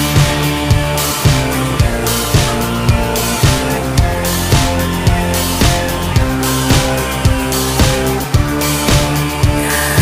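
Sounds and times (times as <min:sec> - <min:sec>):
rock music with guitar and drums: 0:00.0 - 0:10.0.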